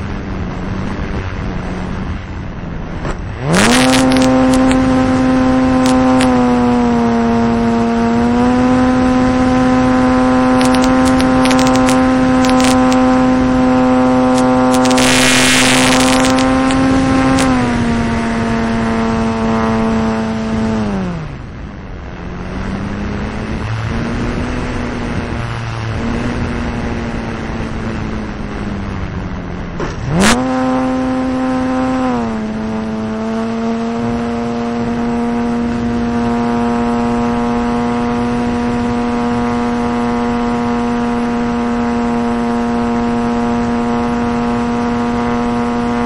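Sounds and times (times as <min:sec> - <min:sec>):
wind noise rushes: 0:00.0 - 0:46.0
model plane motor droning: 0:03.5 - 0:21.3, 0:30.2 - 0:46.0.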